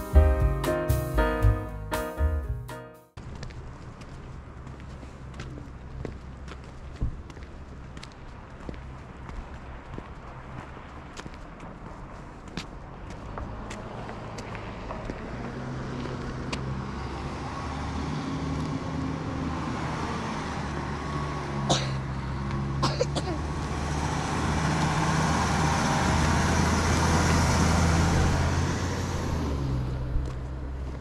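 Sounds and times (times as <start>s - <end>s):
road and tyre noise: 3.1s - 31.0s
vehicle engine hum: 3.2s - 31.0s.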